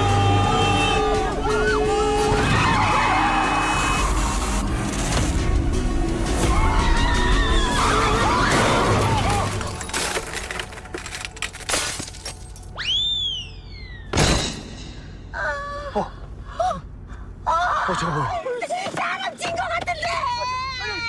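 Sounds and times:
background music: 0:00.0 - 0:12.8
glass shattering: 0:09.4 - 0:12.7.

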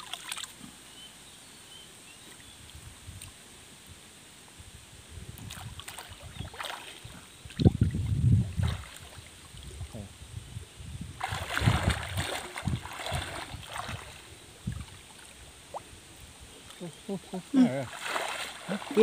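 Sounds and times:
water splashing and sloshing: 0:00.0 - 0:00.7, 0:05.4 - 0:10.0, 0:11.1 - 0:16.0, 0:17.4 - 0:19.0.

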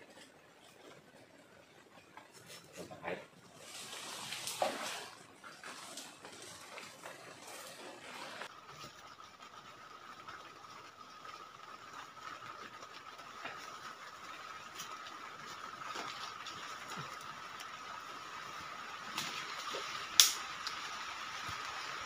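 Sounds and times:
creek water trickling: 0:03.4 - 0:22.0.

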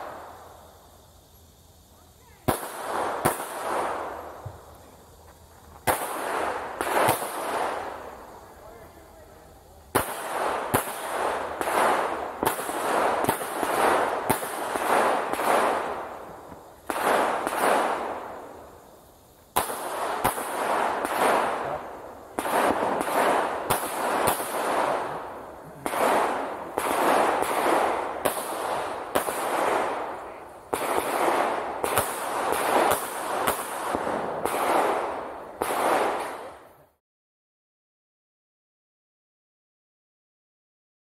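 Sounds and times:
pistol shots with echo: 0:10.0 - 0:16.1, 0:19.6 - 0:36.6.

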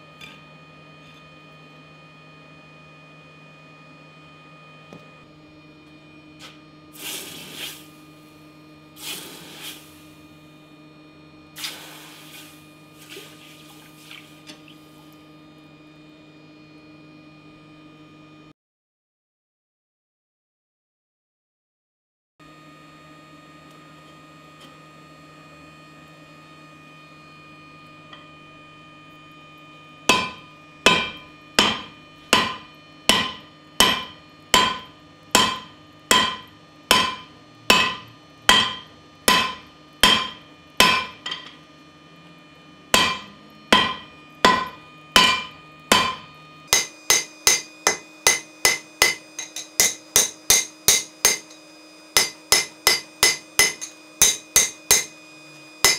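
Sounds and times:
steady hum: 0:04.9 - 0:16.7, 0:27.7 - 0:55.9
hammer striking steel on anvil: 0:30.1 - 0:41.6, 0:43.0 - 0:55.2.

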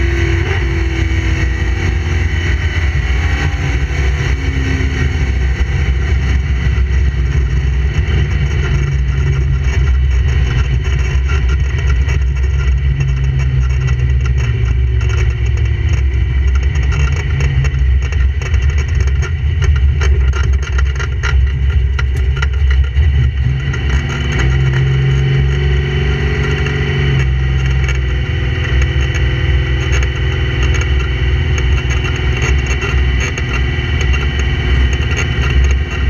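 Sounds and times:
car engine running: 0:00.0 - 0:36.0.

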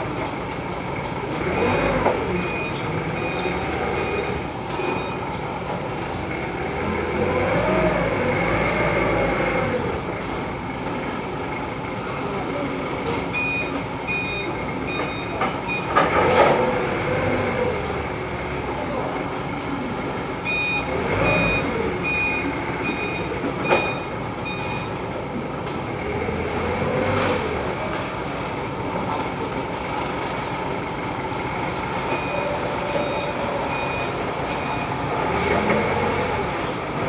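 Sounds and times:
forklift engine running: 0:00.0 - 0:37.0
reversing alarm beeping: 0:02.4 - 0:05.4, 0:13.3 - 0:16.0, 0:20.4 - 0:25.1, 0:32.0 - 0:35.1.

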